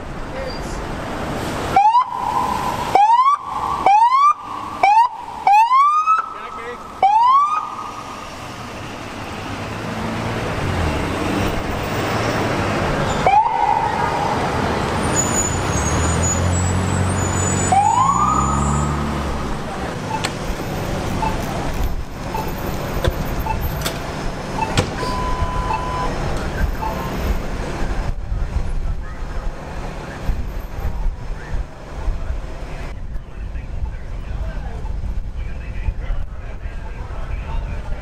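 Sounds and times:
heavy vehicle engine rumbling: 0:00.0 - 0:38.0
street traffic: 0:00.0 - 0:38.0
police siren bursts: 0:01.7 - 0:08.3, 0:13.2 - 0:15.8, 0:17.4 - 0:19.0
short beeps: 0:24.6 - 0:26.2.

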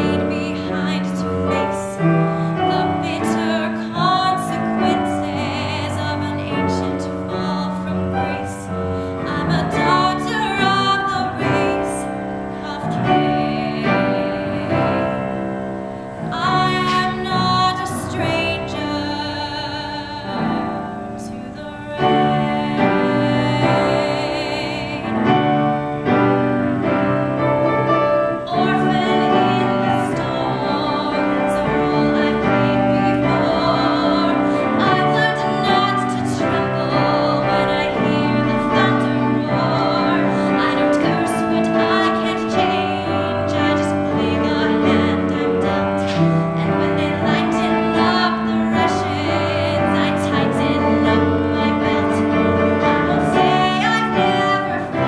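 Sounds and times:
instrumental accompaniment: 0:00.0 - 0:55.0
woman singing a ballad: 0:00.0 - 0:55.0.

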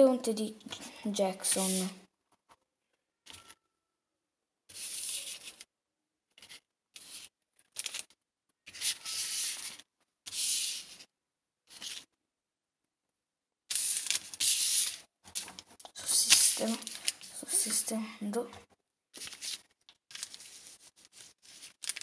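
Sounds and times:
rustling and rubbing of toy packet: 0:01.4 - 0:02.0, 0:04.7 - 0:05.7, 0:06.4 - 0:11.0, 0:13.7 - 0:17.9, 0:19.2 - 0:22.0.

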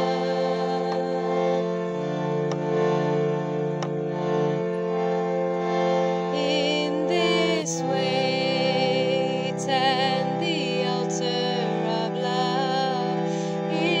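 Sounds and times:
woman singing: 0:00.0 - 0:01.8, 0:06.4 - 0:14.0
reed keyboard chords: 0:00.0 - 0:14.0.

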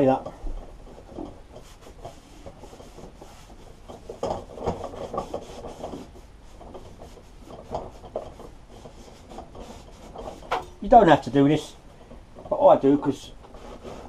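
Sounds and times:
cloth rag rubbing metal: 0:00.8 - 0:11.6, 0:13.5 - 0:14.0.

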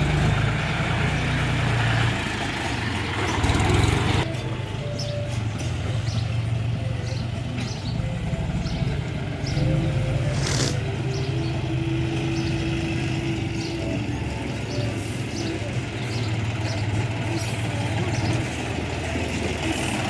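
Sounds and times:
tractor diesel engine idling: 0:00.0 - 0:20.0.

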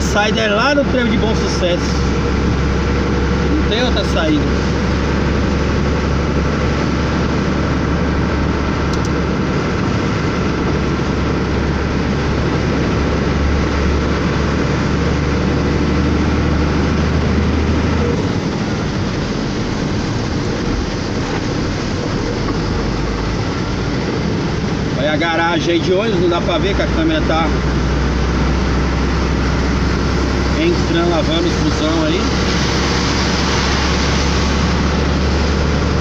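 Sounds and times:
truck engine humming: 0:00.0 - 0:36.0
tyres hissing on wet road: 0:09.3 - 0:36.0.

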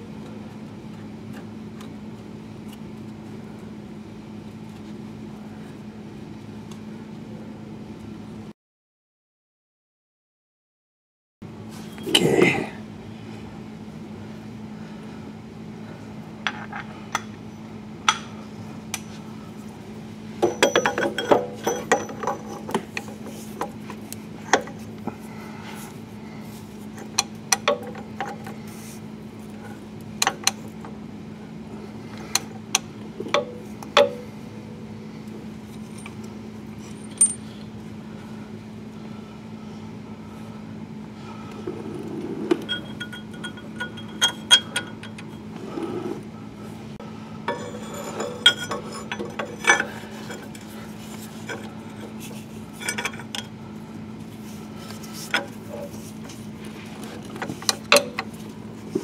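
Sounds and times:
steady low hum: 0:00.0 - 0:08.5, 0:11.4 - 0:59.0
wrench clinking on bolt: 0:20.4 - 0:22.8, 0:36.9 - 0:37.4, 0:42.6 - 0:45.4, 0:47.5 - 0:50.5.

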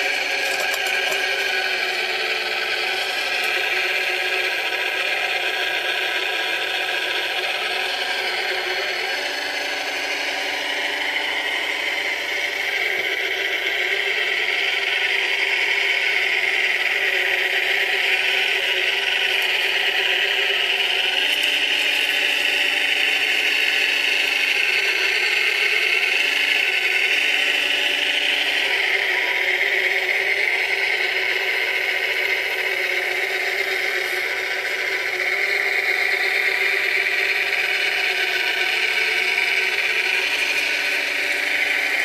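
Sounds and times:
high-pitched motor whir: 0:00.0 - 0:42.0.

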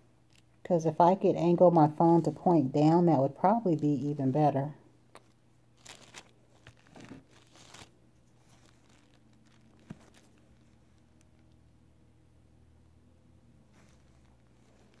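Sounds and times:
soft rustling scrapes: 0:02.0 - 0:02.7, 0:05.8 - 0:11.5, 0:13.6 - 0:15.0.

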